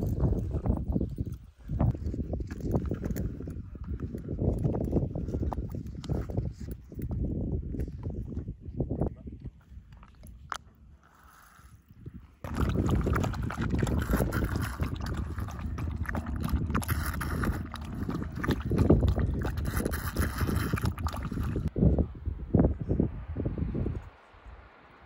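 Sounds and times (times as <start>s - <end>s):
dog lapping water: 12.4s - 21.7s.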